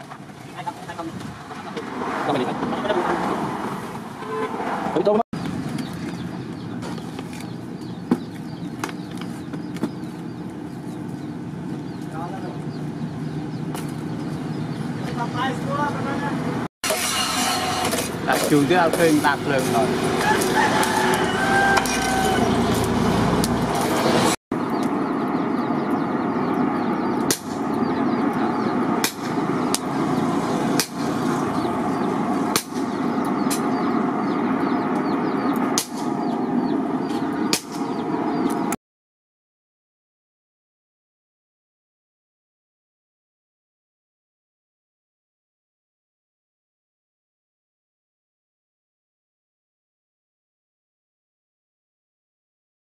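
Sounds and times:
forge fire roaring with blower air: 5.0 - 16.6, 17.6 - 38.8
steady low rushing noise: 22.6 - 38.7
sharp cracks: 27.2 - 27.8, 29.0 - 29.9, 30.8 - 31.1, 32.5 - 33.7, 35.5 - 36.2, 37.5 - 38.0.

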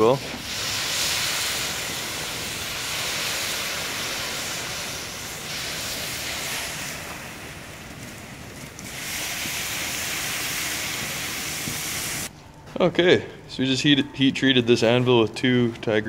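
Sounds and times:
water hissing into steam: 0.0 - 12.3.

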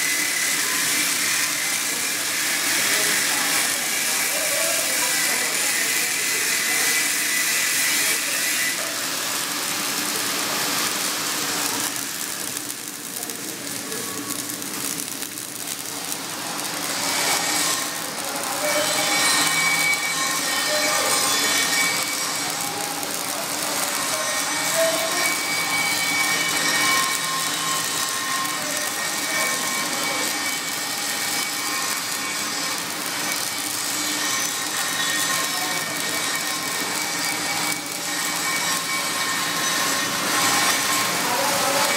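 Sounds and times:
welding arc sizzling: 0.0 - 41.9.

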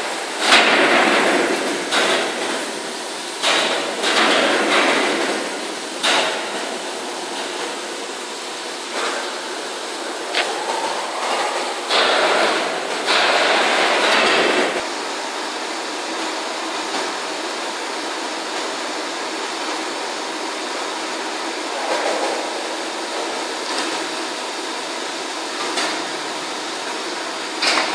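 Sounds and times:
lathe machining noise: 5.5 - 14.8.

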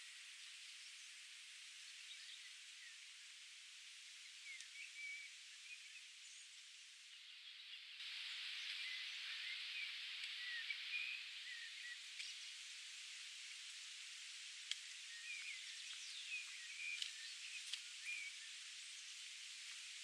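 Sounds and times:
small birds chirping: 4.2 - 13.8, 14.6 - 20.0
steady rushing hiss: 8.0 - 20.0.

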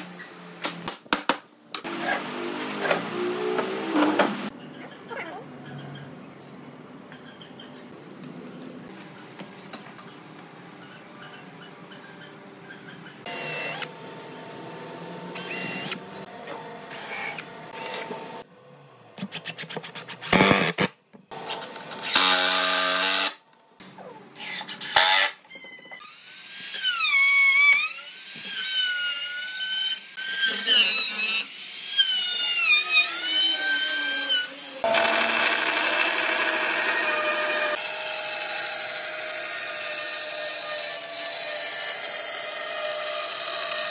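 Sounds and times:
faint workshop background noise: 0.0 - 43.9
electric router running: 34.8 - 37.8.

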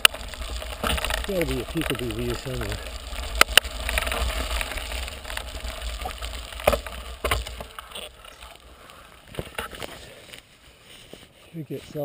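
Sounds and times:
bike knocks and rattles: 0.0 - 8.6, 9.2 - 10.0
tyres crunching on gravel: 0.0 - 12.0.

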